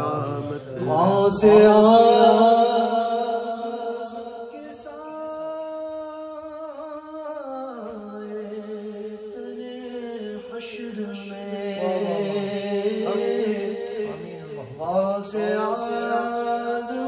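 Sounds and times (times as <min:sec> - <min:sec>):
man singing unaccompanied: 0:00.0 - 0:17.0.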